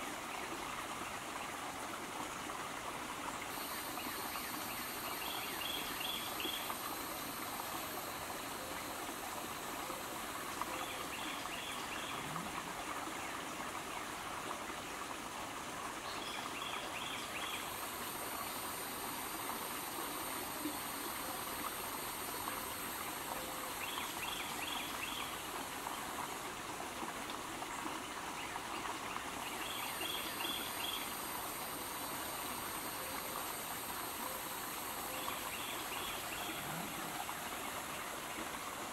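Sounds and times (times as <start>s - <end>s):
faint high whine: 3.2s - 13.2s, 16.1s - 26.3s, 29.4s - 38.9s.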